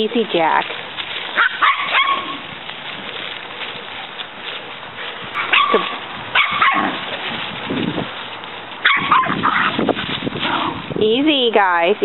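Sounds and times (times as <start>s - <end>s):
small dogs barking: 1.3s - 2.5s, 5.3s - 7.2s, 8.8s - 10.8s
low dog call: 1.4s - 2.5s, 5.0s - 7.2s.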